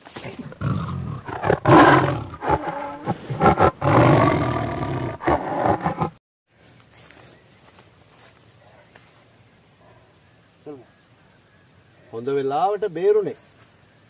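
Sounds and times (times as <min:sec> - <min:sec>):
tiger roaring: 0:00.6 - 0:06.2.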